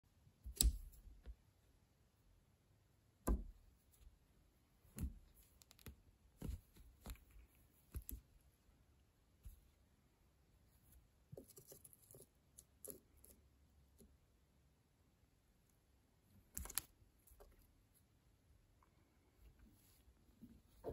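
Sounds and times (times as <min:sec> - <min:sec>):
small clicks: 0:16.5 - 0:17.6.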